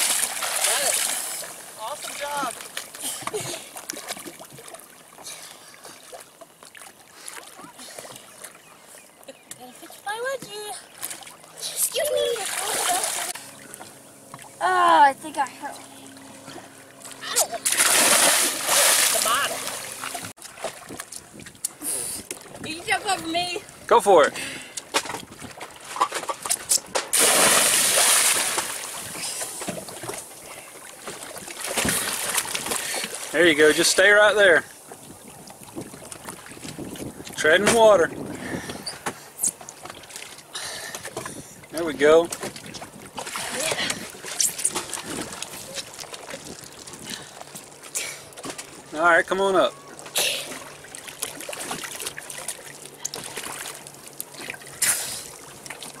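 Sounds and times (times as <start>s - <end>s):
person splashing into water: 0.0s - 1.5s, 17.3s - 20.9s, 27.1s - 29.2s
churning water: 0.0s - 56.0s.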